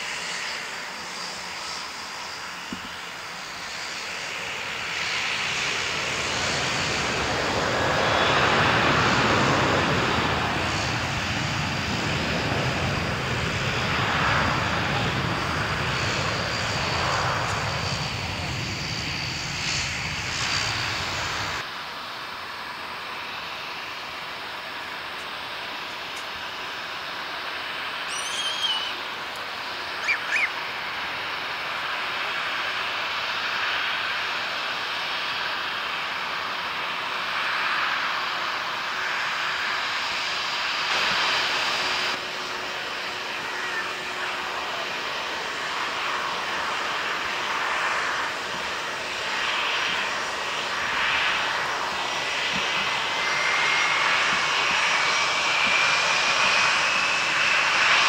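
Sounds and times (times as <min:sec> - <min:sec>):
jet engines whining: 0:00.0 - 0:58.0
thin rising whine: 0:27.7 - 0:31.1
short high chirps: 0:28.1 - 0:29.0, 0:30.0 - 0:30.5.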